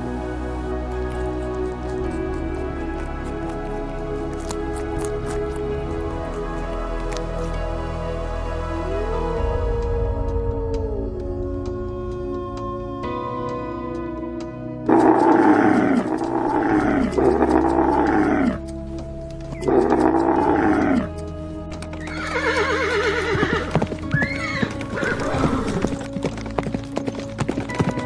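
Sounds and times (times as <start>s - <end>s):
soft background music: 0.0s - 28.0s
sharp clicks: 10.7s - 22.5s
loud animal calls: 14.9s - 18.6s, 19.6s - 21.1s.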